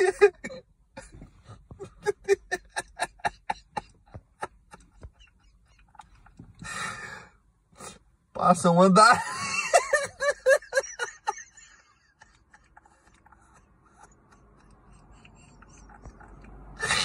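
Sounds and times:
person laughing: 0.0 - 6.1, 9.1 - 17.0
breathy rush: 16.7 - 17.0.

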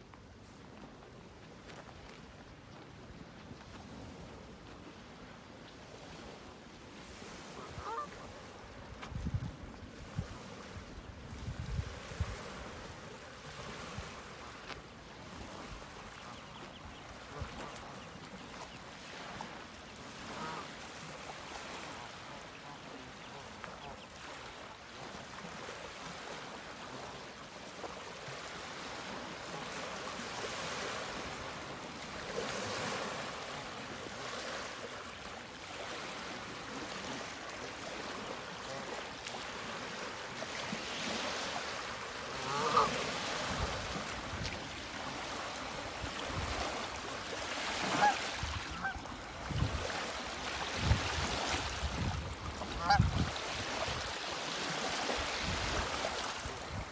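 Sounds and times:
ducks quacking: 7.6 - 8.4, 20.2 - 20.8, 21.8 - 24.2, 42.2 - 43.1, 47.8 - 49.1, 52.6 - 53.2.

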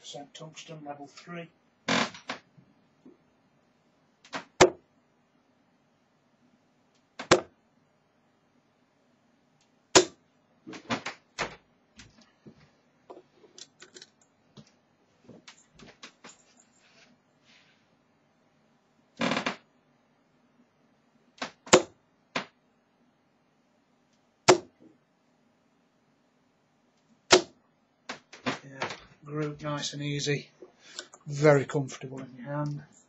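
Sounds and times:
darts thudding into dartboard: 4.3 - 4.8, 7.2 - 7.5, 10.0 - 10.2, 21.4 - 21.9, 24.5 - 24.7, 27.3 - 28.2.

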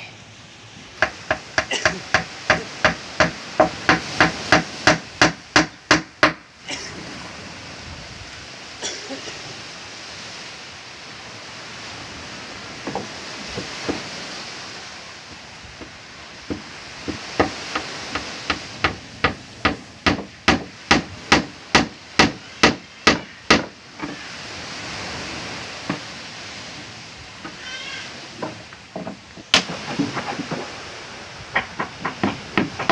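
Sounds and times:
hammer striking wooden planking: 1.0 - 6.4, 16.5 - 24.2, 28.4 - 30.7, 31.5 - 32.9.

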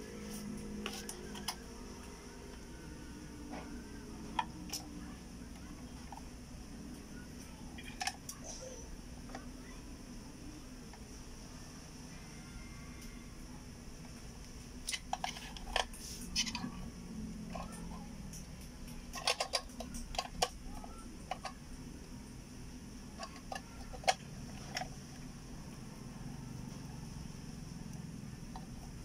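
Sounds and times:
faint steady hum: 0.0 - 29.0
plastic clicks and rattles: 7.7 - 8.6, 14.8 - 16.8, 17.4 - 21.6, 23.2 - 25.2.

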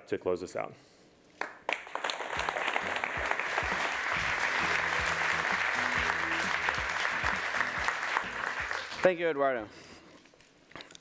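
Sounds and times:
audience applauding: 1.4 - 9.3.

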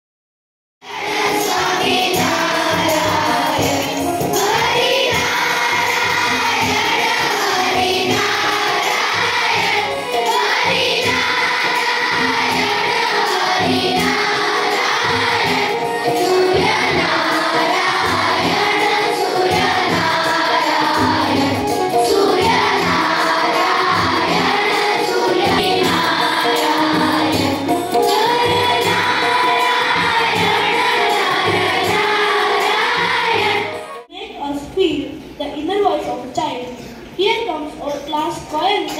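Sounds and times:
children singing together: 0.8 - 34.1
held keyboard chords: 0.9 - 34.1
hand drum: 1.0 - 33.8.

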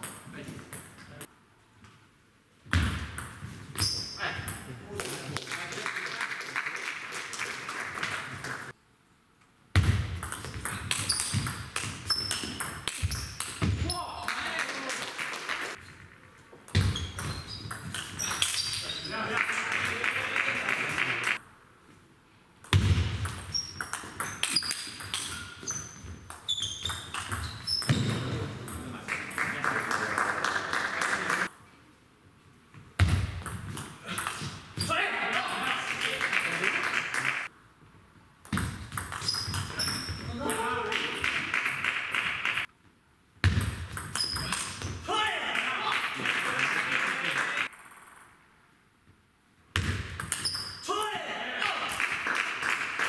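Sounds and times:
shoe squeaks on floor: 3.7 - 4.3, 11.0 - 13.4, 16.8 - 19.2, 23.5 - 28.1, 39.2 - 40.3, 44.2 - 44.5, 50.3 - 50.8
crowd applauding: 5.4 - 8.7, 14.2 - 15.8, 19.3 - 21.4, 29.1 - 31.5, 35.7 - 37.5, 45.6 - 47.7
ping pong ball clicking: 47.7 - 48.3.

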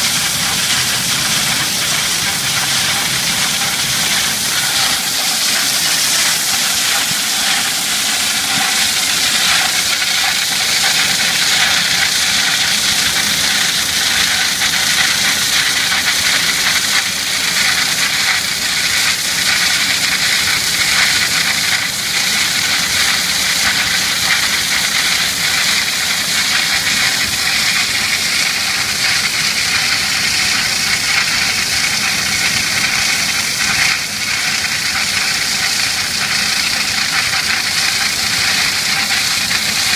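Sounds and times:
wire saw cutting stone: 0.0 - 17.2
water spraying: 0.0 - 39.9.

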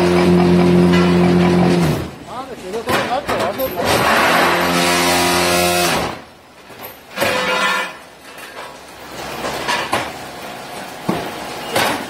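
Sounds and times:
metallic clanks and knocks: 0.0 - 2.0
machine mechanical hum: 0.0 - 12.0.

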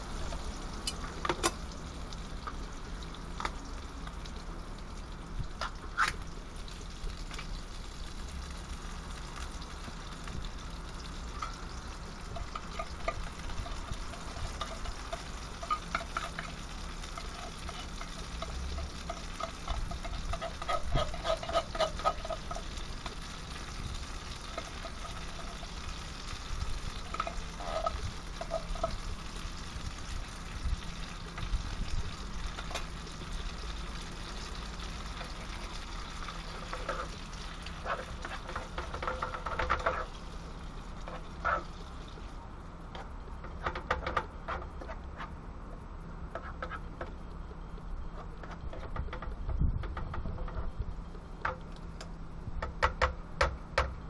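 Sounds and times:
sausages frying in a pan: 0.0 - 54.0
utensil scraping metal pan: 12.3 - 29.6, 35.1 - 40.2.

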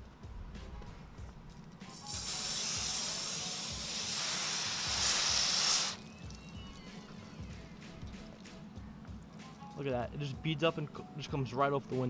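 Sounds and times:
hose nozzle spraying water: 1.9 - 8.6.

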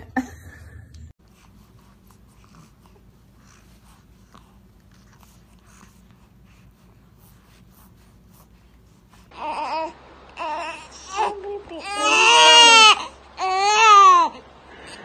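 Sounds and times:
low room hum: 0.0 - 15.0
soft breathing: 1.2 - 9.4, 14.3 - 15.0.

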